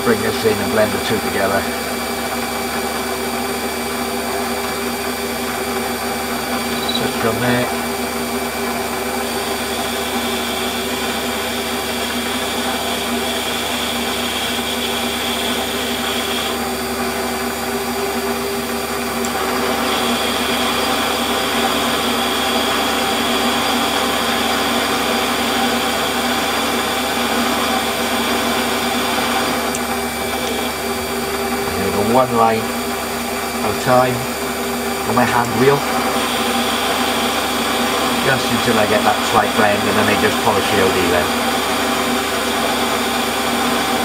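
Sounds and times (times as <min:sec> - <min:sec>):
metal lathe motor and gear hum: 0:00.0 - 0:44.0.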